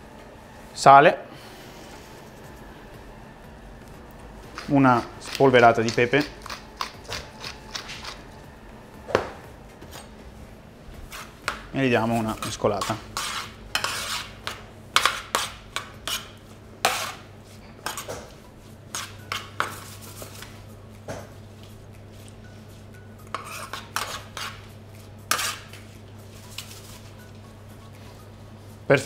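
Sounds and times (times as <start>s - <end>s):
low steady hum: 0.0s - 29.0s
metal spoon scraping oven tray: 11.1s - 18.1s, 23.3s - 24.6s, 25.3s - 25.7s.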